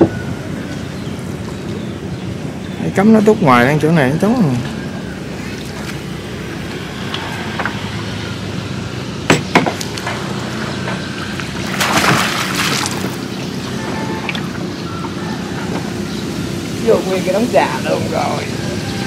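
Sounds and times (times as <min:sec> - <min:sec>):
splash and sloshing water: 0:05.3 - 0:07.9, 0:09.8 - 0:15.2
sharp knocks: 0:09.3 - 0:11.1.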